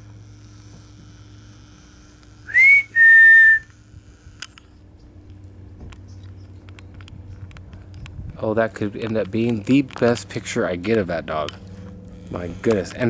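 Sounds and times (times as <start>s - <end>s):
person whistling: 2.5s - 3.7s.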